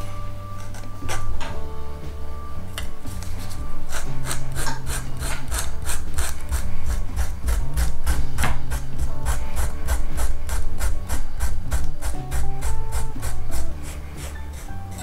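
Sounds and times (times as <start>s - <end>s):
hand file rasping leather: 3.2s - 15.0s.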